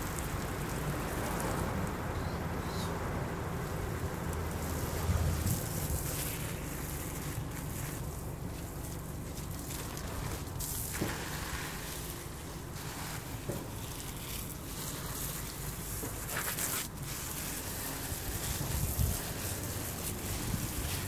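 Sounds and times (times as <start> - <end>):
wind buffeting microphone: 4.8 - 6.4, 18.3 - 21.0.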